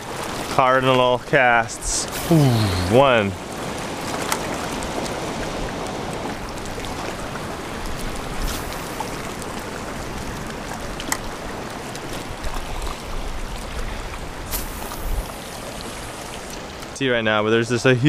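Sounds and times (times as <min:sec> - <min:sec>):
small waves washing against rocks: 0:03.0 - 0:17.0.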